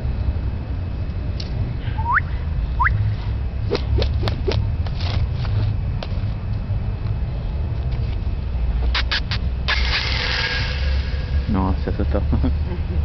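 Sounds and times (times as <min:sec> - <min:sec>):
rising whistle-like chirps: 0:02.0 - 0:03.0
wind rumbling on microphone: 0:02.8 - 0:08.9.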